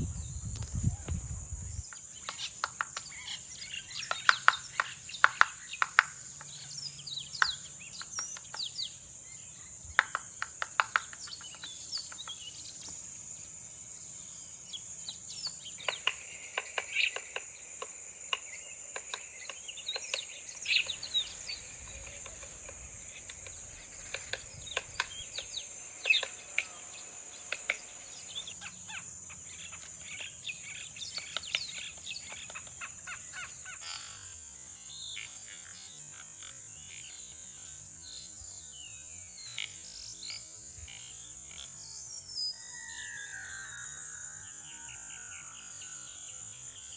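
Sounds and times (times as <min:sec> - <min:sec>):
birds calling: 0:00.0 - 0:16.2, 0:20.6 - 0:34.6
high-pitched insect drone: 0:00.0 - 0:16.5, 0:20.6 - 0:46.9.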